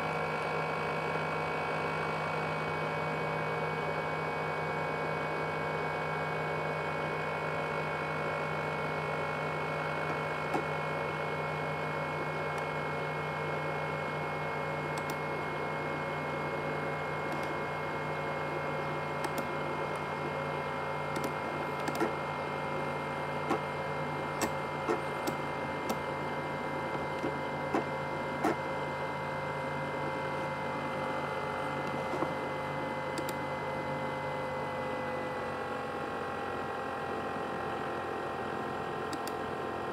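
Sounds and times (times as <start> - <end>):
laptop fan whining: 0.0 - 39.9
sharp clicks: 15.0 - 15.2, 21.1 - 22.1.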